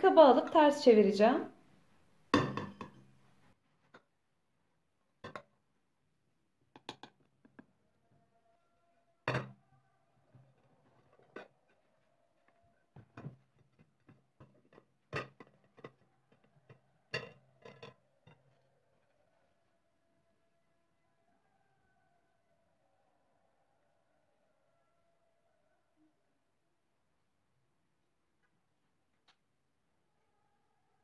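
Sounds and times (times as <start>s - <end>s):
metal pot and dishes clinking: 2.4s - 3.0s, 17.1s - 18.0s.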